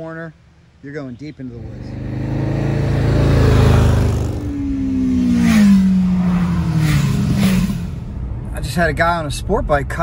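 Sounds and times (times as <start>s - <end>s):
motorcycle passing by: 1.6s - 8.2s.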